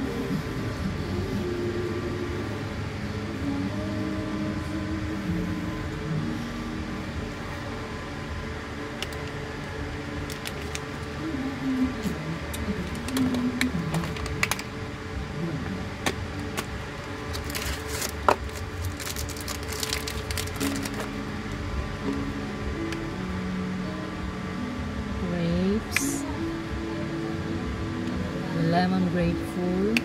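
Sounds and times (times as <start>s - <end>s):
steady room hum: 0.0s - 30.0s
plastic and foil packaging crinkling: 10.2s - 11.1s, 12.5s - 14.7s, 16.4s - 21.2s.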